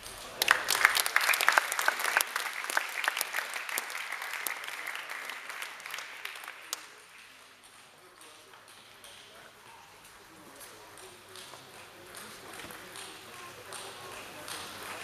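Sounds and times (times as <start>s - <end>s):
spectators applauding: 0.0s - 7.4s.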